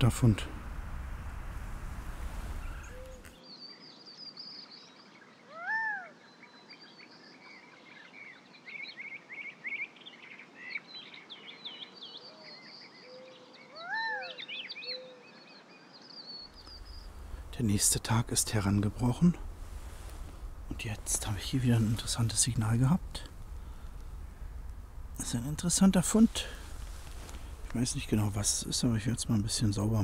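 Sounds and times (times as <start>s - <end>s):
mewing bird calls: 0.0s - 3.4s
small birds twittering: 0.0s - 5.4s, 6.1s - 30.0s.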